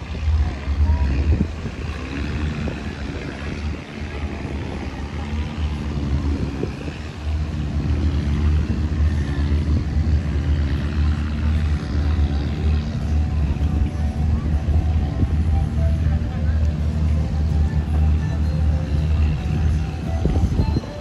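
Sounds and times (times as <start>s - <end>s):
engine droning: 0.0s - 21.0s.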